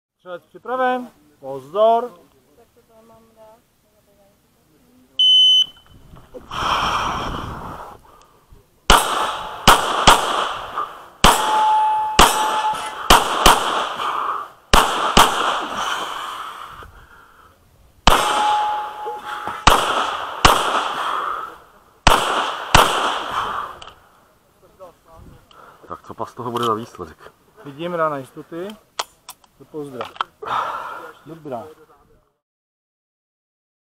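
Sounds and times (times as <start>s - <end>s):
handgun shots: 8.9s - 14.0s, 14.7s - 15.7s, 18.1s - 21.0s, 22.1s - 23.4s
metallic ring of steel target: 11.2s - 13.1s, 18.1s - 19.7s.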